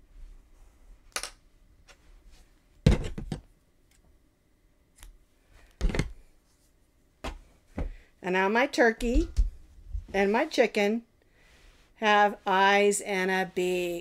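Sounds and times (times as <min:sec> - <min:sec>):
knocks and rustles: 0:02.8 - 0:03.5, 0:05.8 - 0:06.2.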